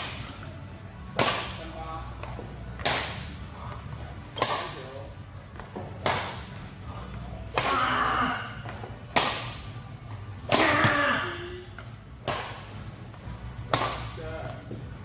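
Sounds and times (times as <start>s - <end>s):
racket hitting shuttlecock: 9.1s - 9.6s.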